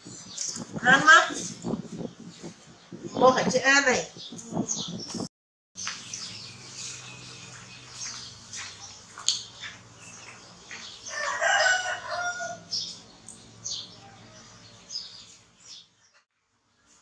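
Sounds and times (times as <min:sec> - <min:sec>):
rooster crowing: 0:11.0 - 0:12.7.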